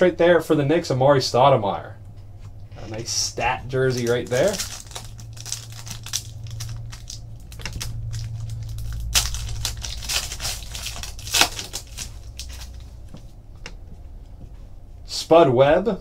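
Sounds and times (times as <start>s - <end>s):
foil wrapper crinkling and tearing: 3.8s - 13.0s.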